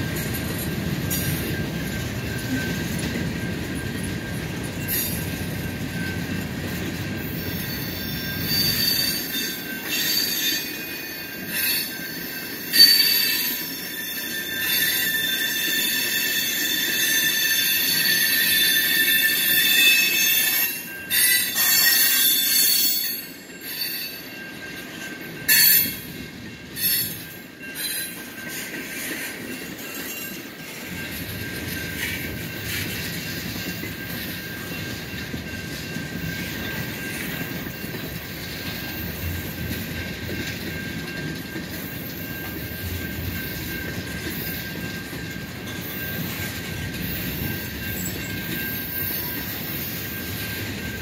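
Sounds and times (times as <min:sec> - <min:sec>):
low rolling rumble of train: 0:00.0 - 0:51.0
train wheels squealing on rails: 0:00.0 - 0:51.0.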